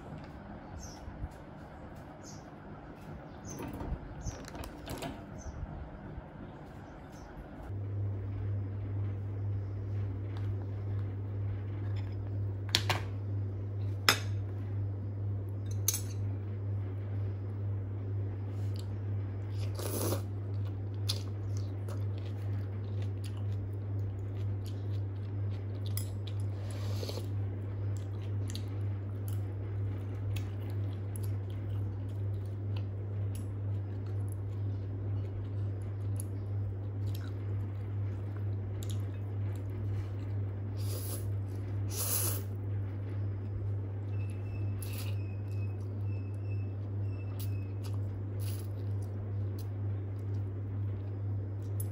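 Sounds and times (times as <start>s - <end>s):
steady low hum: 0.0s - 51.9s
soft eating sounds: 6.4s - 51.9s.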